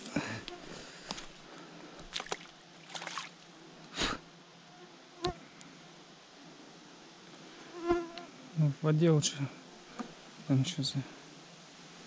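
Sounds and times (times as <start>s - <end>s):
insects buzzing: 0.0s - 12.0s.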